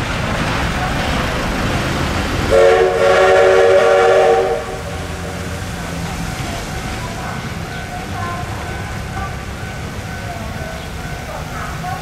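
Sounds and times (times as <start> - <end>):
locomotive rumbling past: 0.0 - 12.0
train horn chord: 2.5 - 5.5.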